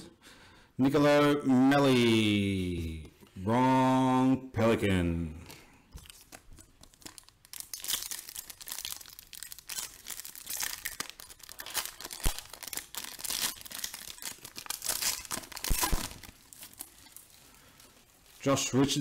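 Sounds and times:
foil wrapper crinkling and tearing: 0:05.9 - 0:19.0.

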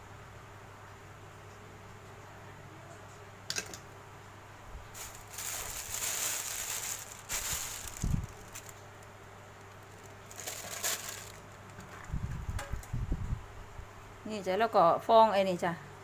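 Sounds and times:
plastic bag rustling: 0:04.9 - 0:08.9, 0:09.6 - 0:12.0.

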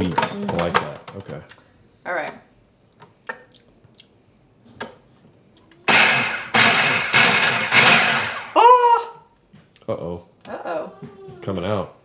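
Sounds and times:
food processor clicks: 0:05.9 - 0:08.4
food processor motor whirring: 0:05.9 - 0:08.5.

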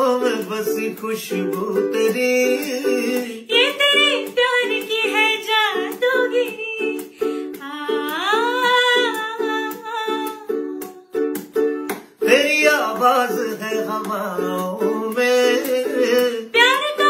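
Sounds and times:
ukulele strumming: 0:00.0 - 0:17.0
woman singing: 0:02.5 - 0:11.2, 0:14.4 - 0:17.0.

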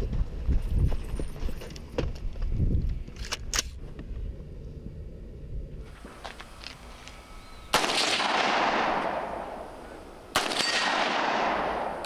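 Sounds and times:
rifle shots with echo: 0:07.6 - 0:12.0.

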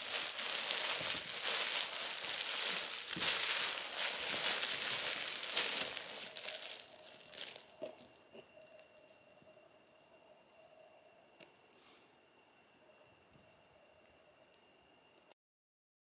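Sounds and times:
fabric tunnel crinkling and rustling: 0:00.0 - 0:08.2.

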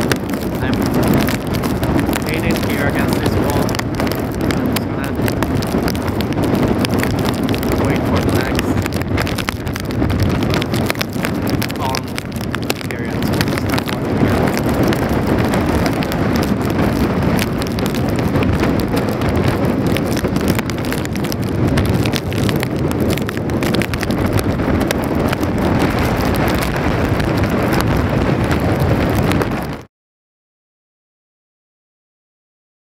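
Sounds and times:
rain falling on street: 0:00.0 - 0:29.9
strong wind buffeting microphone: 0:00.0 - 0:29.9.

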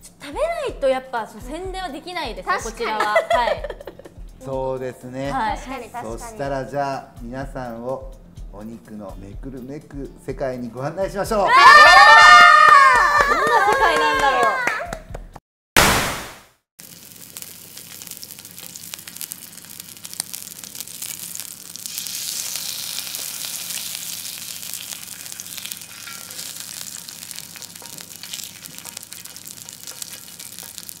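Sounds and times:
meat sizzling and popping: 0:15.8 - 0:31.0.

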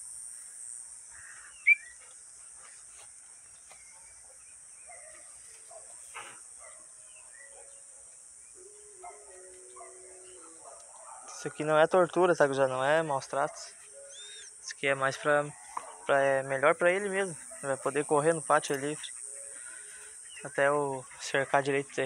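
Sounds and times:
crickets chirping: 0:00.0 - 0:22.0
bird chirps: 0:01.2 - 0:02.1, 0:03.4 - 0:11.5, 0:13.7 - 0:16.4, 0:18.7 - 0:22.0.

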